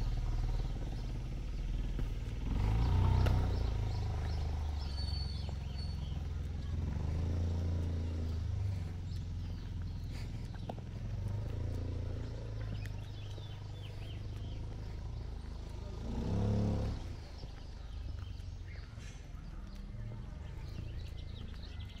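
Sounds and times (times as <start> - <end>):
steady low rumble: 0.0 - 16.2.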